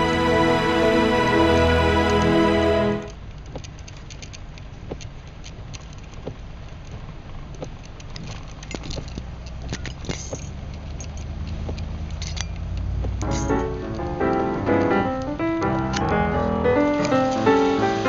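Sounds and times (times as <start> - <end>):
rain drops ticking on car: 3.2 - 18.0
car driving on wet road: 4.7 - 18.0.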